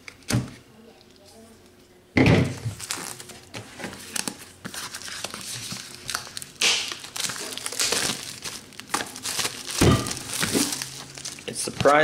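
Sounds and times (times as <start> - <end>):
plastic shrink wrap crinkling: 2.6 - 12.0.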